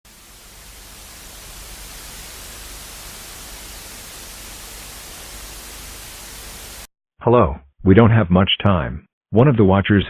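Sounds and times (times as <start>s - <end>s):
television static hiss: 0.1s - 6.9s.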